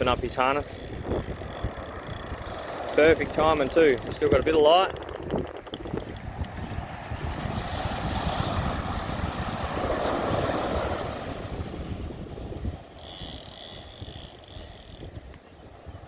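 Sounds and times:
wind buffeting microphone: 0.0s - 16.0s
surf washing: 2.6s - 12.9s.

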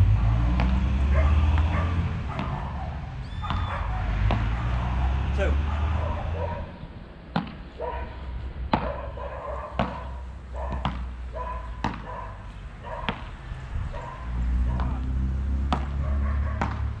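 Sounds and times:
paddles striking ball: 9.8s - 11.1s, 11.8s - 12.1s, 15.7s - 16.0s, 16.6s - 16.9s.

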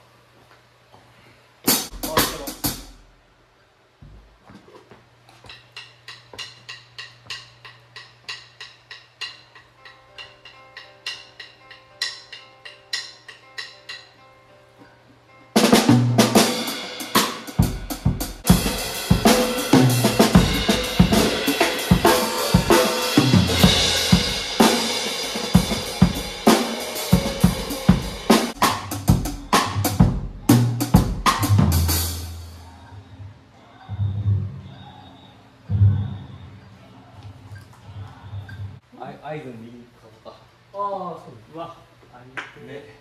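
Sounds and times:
drum hits: 1.7s - 3.0s, 15.6s - 32.3s
band playing: 15.5s - 32.6s.

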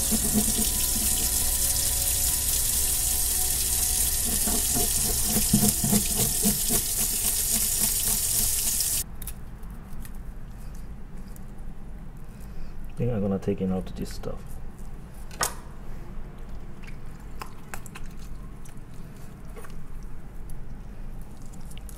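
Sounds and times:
fish scaler scraping: 0.0s - 9.0s
tap water running into steel sink: 0.0s - 9.0s.

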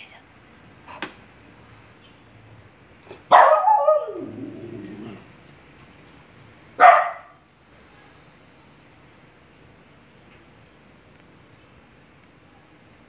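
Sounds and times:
small dog barking: 3.1s - 5.2s, 6.8s - 7.4s.

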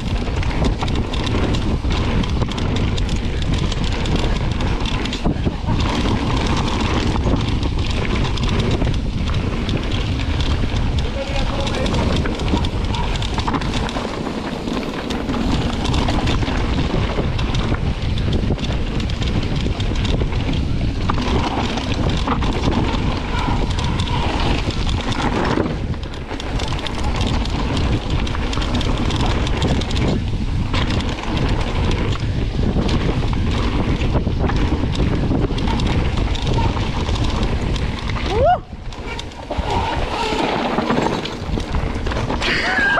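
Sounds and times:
bike rattling over bumps: 0.0s - 42.9s
wind over camera microphone: 0.0s - 42.9s
tyres crunching on gravel: 0.1s - 38.3s.

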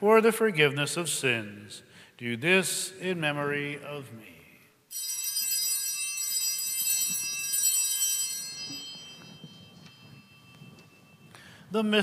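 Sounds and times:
altar bell ringing: 4.9s - 12.0s.

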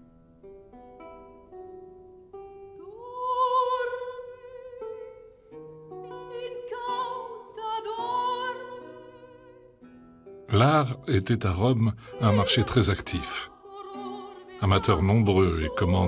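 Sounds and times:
trained singer with vibrato: 2.9s - 5.0s, 6.3s - 9.6s, 10.6s - 16.0s
plucked string accompaniment: 4.9s - 16.0s.

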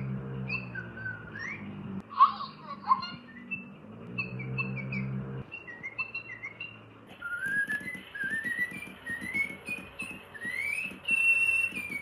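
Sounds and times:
rising whistled glides: 0.4s - 1.8s, 3.2s - 12.0s
toy bird chirping: 2.4s - 12.0s.

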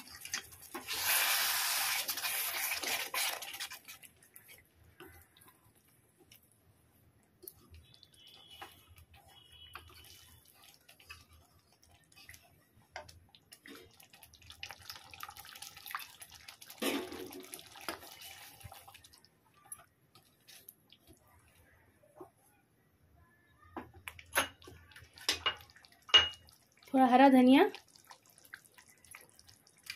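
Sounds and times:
water pouring into a pan: 0.0s - 4.0s, 13.5s - 19.7s.

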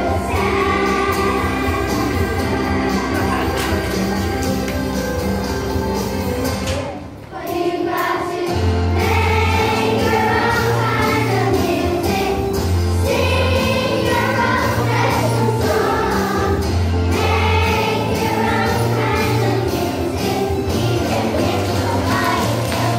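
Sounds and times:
children singing: 0.0s - 4.4s, 6.8s - 22.9s.

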